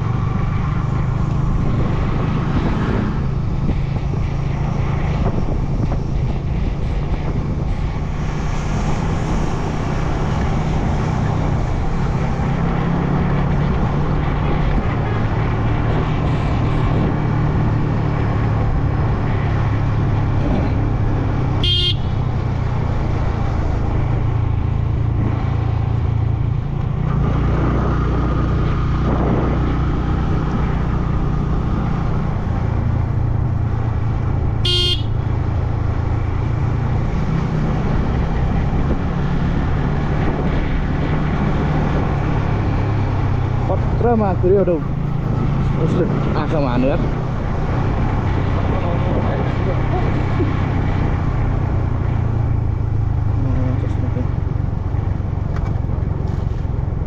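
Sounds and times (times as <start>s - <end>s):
road and wind noise: 0.0s - 57.0s
horn beeping: 21.6s - 22.2s, 34.6s - 35.2s.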